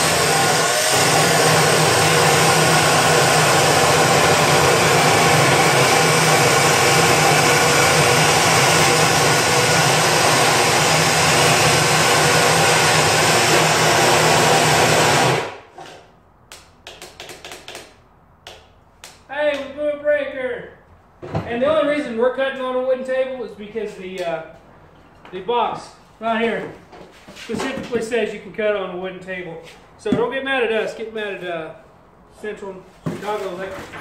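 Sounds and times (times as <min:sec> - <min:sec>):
cut-off saw grinding steel: 0:00.0 - 0:15.6.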